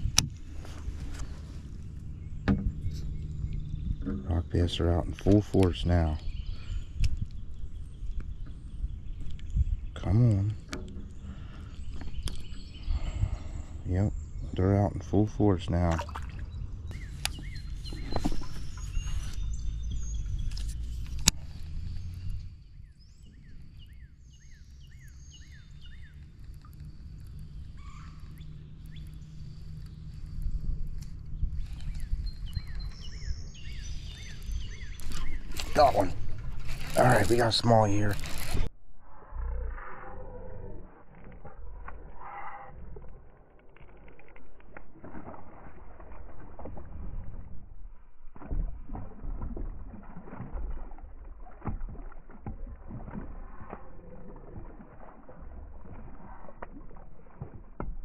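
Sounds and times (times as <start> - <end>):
steady low rumble: 0.0 - 44.8
songbird chirping: 0.5 - 38.7
fish splashing: 15.9 - 19.3, 25.5 - 38.7, 43.1 - 58.0
thin high bird calls: 16.2 - 38.3.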